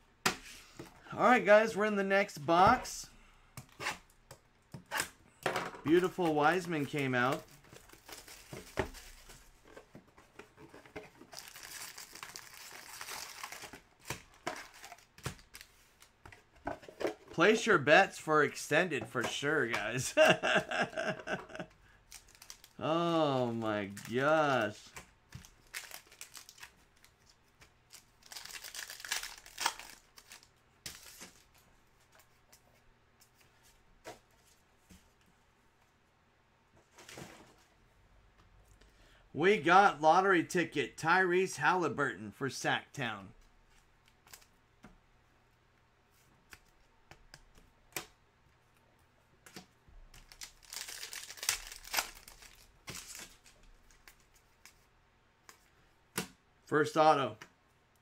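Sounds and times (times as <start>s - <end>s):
foil wrapper tearing and crinkling: 11.4s - 15.7s, 25.4s - 26.7s, 28.2s - 31.2s, 50.2s - 54.0s
soft clicks of cards handled: 53.8s - 56.3s.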